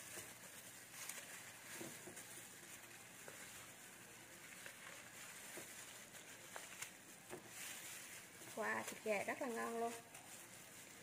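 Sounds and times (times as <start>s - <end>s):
low steady hiss: 0.0s - 11.0s
plastic gloves crinkling: 0.0s - 11.0s.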